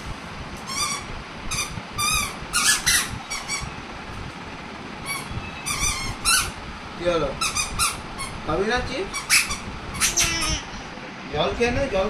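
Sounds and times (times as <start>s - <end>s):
squeaky shoes chirping: 5.1s - 6.5s, 9.2s - 10.7s.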